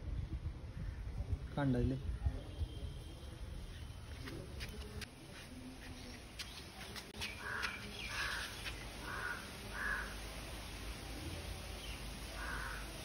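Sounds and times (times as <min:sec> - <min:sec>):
crow cawing: 0:07.4 - 0:10.2, 0:12.4 - 0:13.0.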